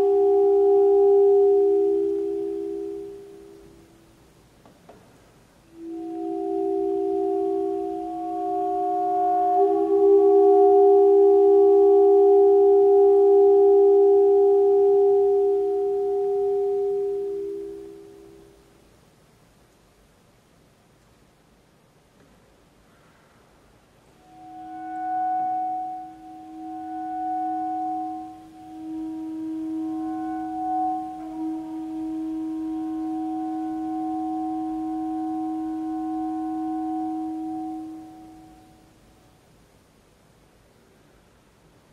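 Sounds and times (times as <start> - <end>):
saxophone and electronics chord: 0.0 - 4.0, 5.7 - 18.6, 24.2 - 38.9.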